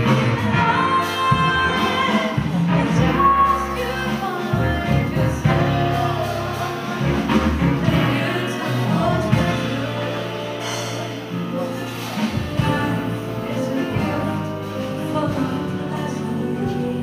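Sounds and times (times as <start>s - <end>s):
jazz band playing: 0.0s - 17.0s
woman singing: 0.0s - 17.0s.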